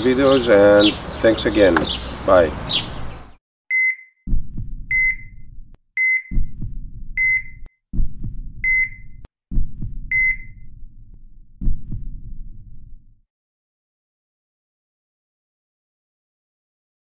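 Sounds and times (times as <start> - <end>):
heart monitor beeps: 3.7 - 10.7
heartbeat: 4.2 - 13.2.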